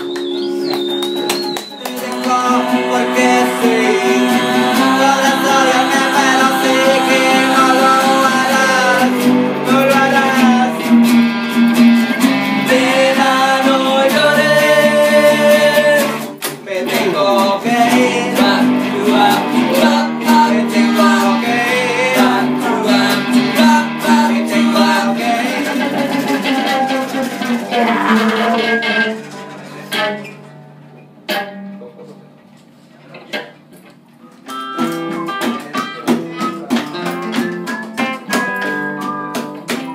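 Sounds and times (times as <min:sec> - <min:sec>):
acoustic guitars strummed and picked: 0:00.0 - 0:39.9
person singing long notes: 0:01.7 - 0:10.9, 0:12.6 - 0:16.3, 0:16.9 - 0:29.2.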